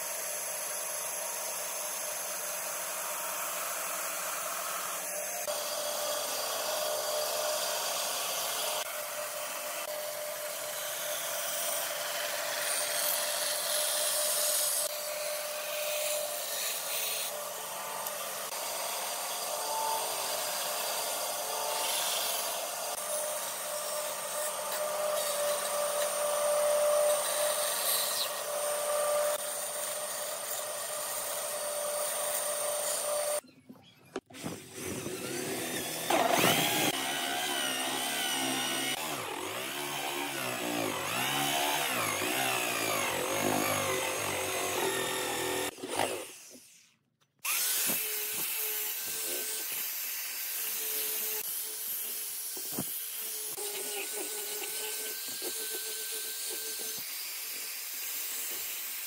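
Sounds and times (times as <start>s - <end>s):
bandsaw cutting wood: 0.0s - 33.4s, 34.2s - 59.0s
electric drill boring wood: 0.0s - 33.4s, 34.2s - 59.0s
angle grinder sanding wood: 34.3s - 46.9s, 47.5s - 59.0s.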